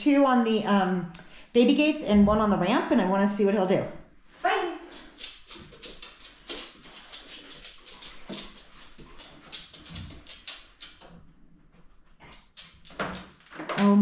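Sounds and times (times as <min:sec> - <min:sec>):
dog sniffing: 0:04.8 - 0:12.9
dog claws clicking on hard floor: 0:04.8 - 0:14.0.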